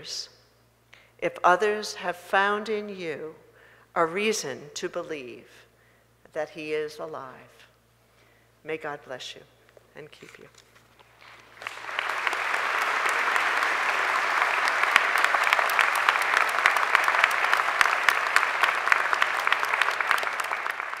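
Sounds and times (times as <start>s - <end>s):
large audience applauding: 11.0s - 21.0s.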